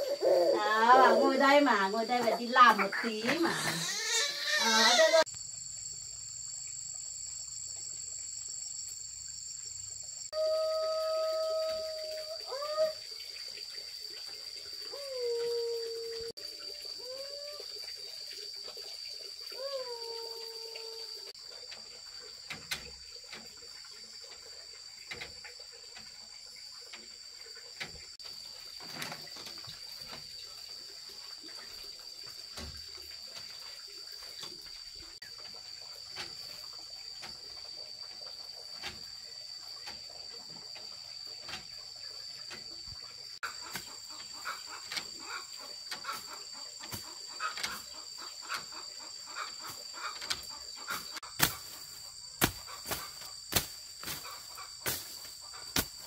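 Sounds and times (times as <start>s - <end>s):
high insect drone: 0.0s - 56.0s.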